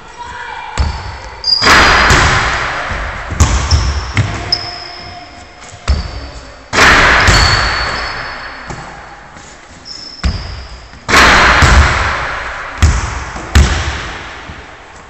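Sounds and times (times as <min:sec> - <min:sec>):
basketball bouncing on wooden floor: 0:00.8 - 0:01.2, 0:02.1 - 0:04.8, 0:10.2 - 0:12.2, 0:12.8 - 0:14.6.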